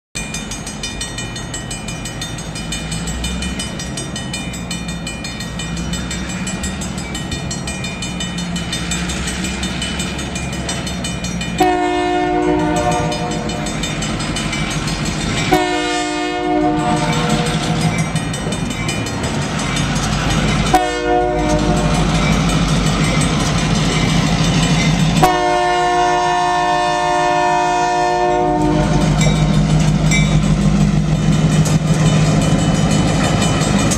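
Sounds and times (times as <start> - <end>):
crossing bell ringing: 0.2 - 33.9
locomotive engine rumble: 0.2 - 33.9
locomotive horn blasts: 11.6 - 13.7, 15.5 - 17.8, 20.7 - 22.1, 25.2 - 29.2.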